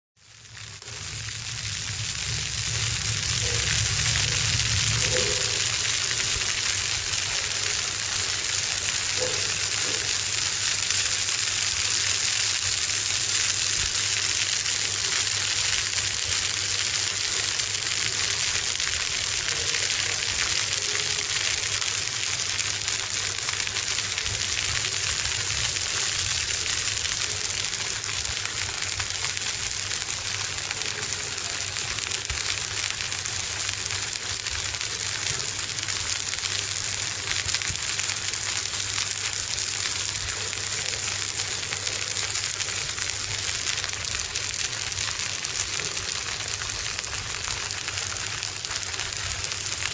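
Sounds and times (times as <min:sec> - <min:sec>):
fish sizzling on a grill: 0:00.2 - 0:15.8.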